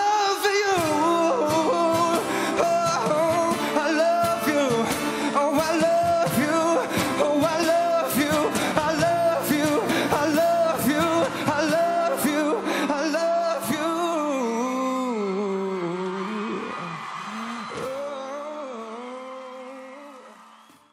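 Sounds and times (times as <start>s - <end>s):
strummed acoustic guitar: 0.0s - 14.4s
man singing into a microphone: 0.0s - 20.4s.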